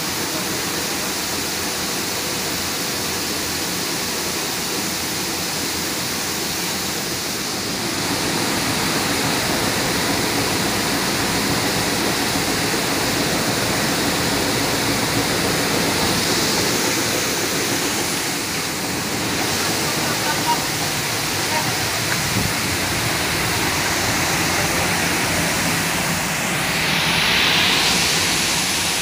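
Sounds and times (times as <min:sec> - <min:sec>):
grain pouring down metal chute: 0:00.0 - 0:29.0
grain sorter machine rushing: 0:00.0 - 0:29.0.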